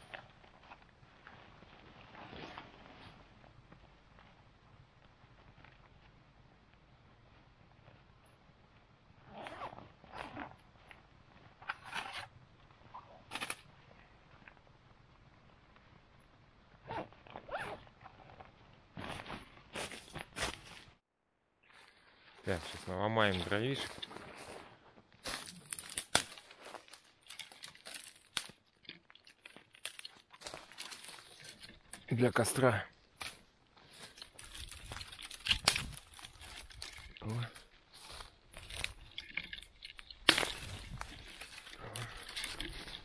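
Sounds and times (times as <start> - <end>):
backpack fabric rustling: 0.6 - 4.2
branches rustling: 21.6 - 43.0
twigs snapping and cracking: 25.2 - 32.1, 33.2 - 43.0.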